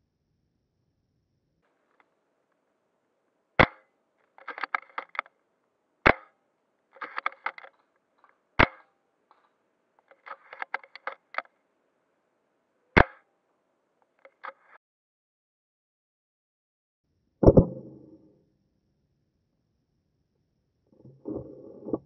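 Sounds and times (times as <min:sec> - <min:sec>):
airsoft gun shots: 0:03.6 - 0:05.3, 0:06.0 - 0:06.4, 0:08.6 - 0:08.9, 0:13.0 - 0:13.2
quick clicks and rattles: 0:03.6 - 0:05.4, 0:06.0 - 0:11.6, 0:14.0 - 0:14.8.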